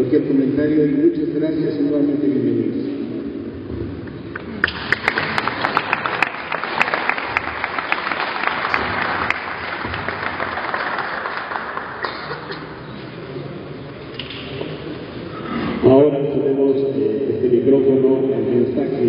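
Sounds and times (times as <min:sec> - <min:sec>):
hands clapping: 0:04.3 - 0:12.8.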